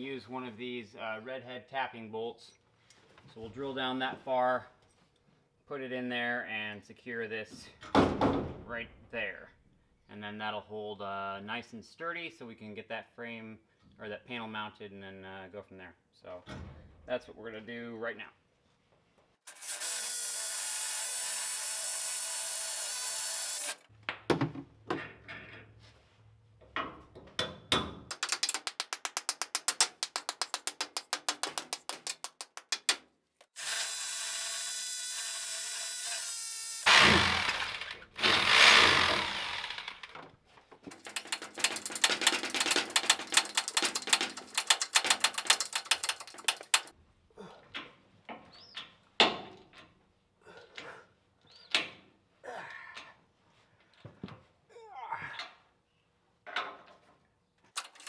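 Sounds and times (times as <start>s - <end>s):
power drill drilling into concrete: 19.5s - 23.8s, 33.6s - 40.2s
knocks of anchors being set: 27.4s - 33.6s, 36.9s - 46.9s
rapid even clicking: 28.1s - 33.0s, 40.9s - 46.9s, 57.8s - 58.0s.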